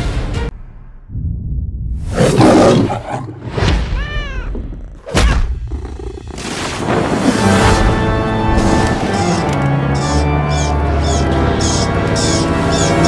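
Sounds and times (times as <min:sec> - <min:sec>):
music: 0:00.0 - 0:01.1, 0:07.3 - 0:13.0
cartoon lion roaring: 0:02.1 - 0:03.6, 0:04.4 - 0:06.6.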